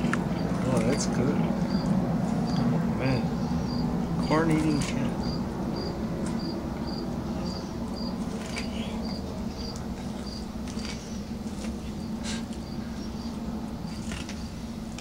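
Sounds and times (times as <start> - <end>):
cricket chirping: 0.0 - 15.0
steady low hum: 0.0 - 15.0
cat crunching corn: 8.2 - 12.6, 13.8 - 15.0.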